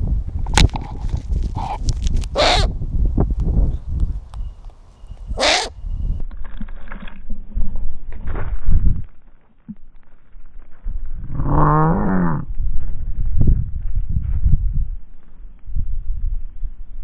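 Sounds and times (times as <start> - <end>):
low rumble: 5.8 - 17.0.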